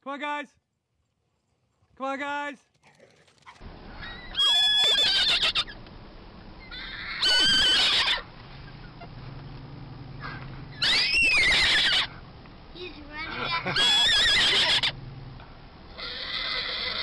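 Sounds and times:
horse whinnying: 4.0 - 5.8, 6.6 - 8.2, 10.7 - 12.1, 13.7 - 15.0, 15.9 - 17.0.

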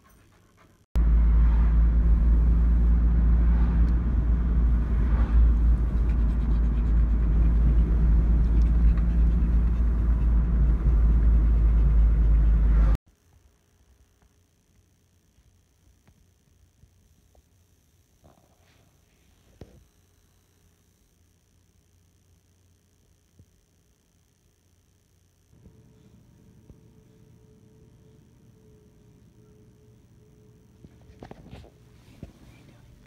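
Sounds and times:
car rumble from inside cabin: 1.0 - 13.0.

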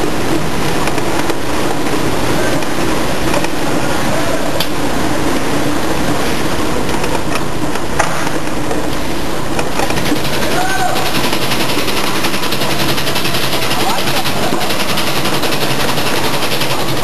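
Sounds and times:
bottle filling machine running: 0.0 - 17.0.

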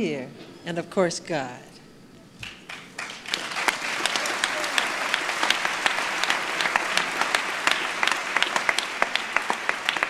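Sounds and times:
audience applauding: 2.4 - 10.0
sharp separate hand claps: 2.4 - 10.0.

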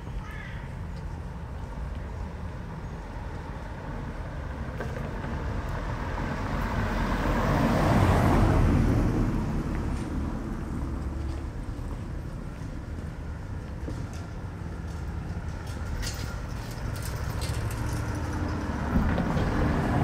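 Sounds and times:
car driving past: 5.8 - 11.4.

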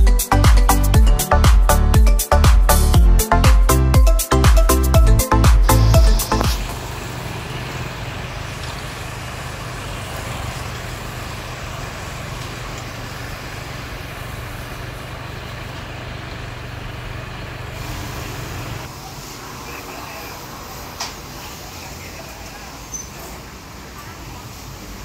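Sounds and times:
low engine hum: 5.7 - 18.9
cars driving past: 5.8 - 25.0.

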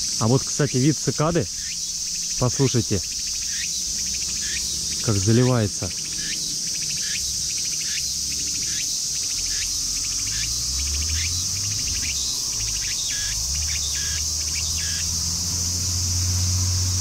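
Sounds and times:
cicada pulsing call: 0.0 - 17.0
cicadas hissing: 0.0 - 17.0.

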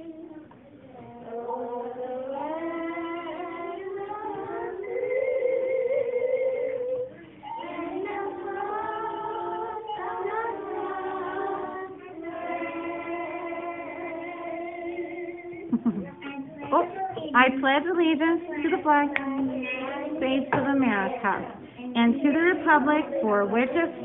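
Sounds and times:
slow song with held notes: 0.0 - 17.1.

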